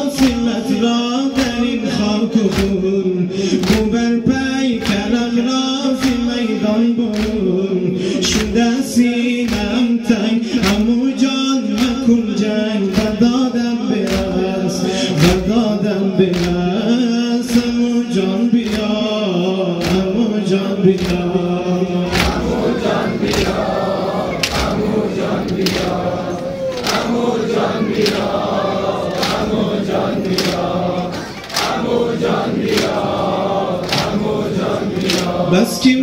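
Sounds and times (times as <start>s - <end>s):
men chanting in unison: 0.0s - 36.0s
hand slaps on chests: 2.5s - 2.9s, 3.5s - 3.9s, 4.8s - 5.2s, 7.1s - 7.5s, 9.4s - 9.8s, 10.6s - 10.9s, 11.7s - 12.1s, 14.0s - 14.4s, 16.3s - 16.6s, 18.6s - 19.0s, 19.7s - 21.4s, 22.0s - 35.5s.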